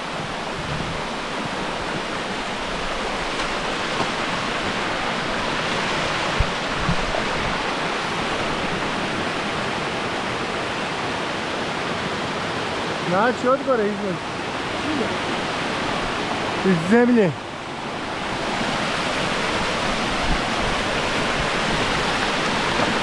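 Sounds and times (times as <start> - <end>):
rushing spring water: 0.0 - 23.0.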